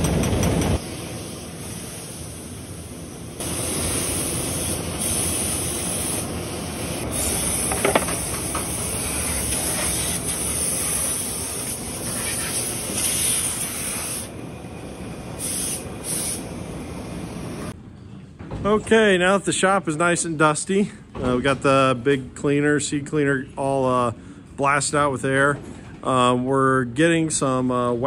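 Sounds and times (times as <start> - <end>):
compressed air hissing: 0.8 - 17.8.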